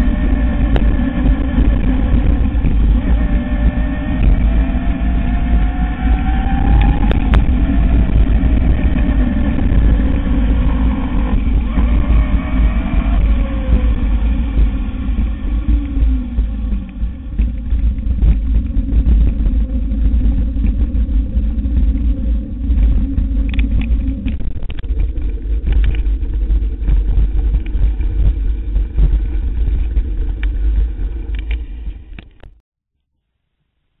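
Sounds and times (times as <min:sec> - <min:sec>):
bike tyre rumble on pavement: 0:00.0 - 0:32.6
wind buffeting microphone: 0:00.0 - 0:32.6
scattered clicks: 0:21.7 - 0:32.6.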